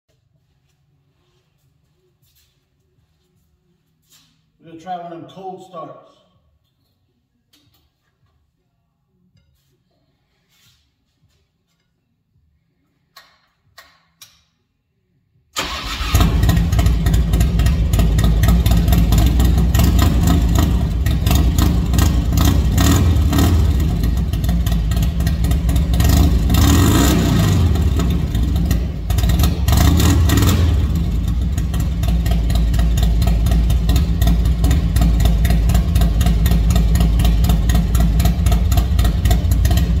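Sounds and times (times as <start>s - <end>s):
motorcycle engine running: 16.2s - 40.0s.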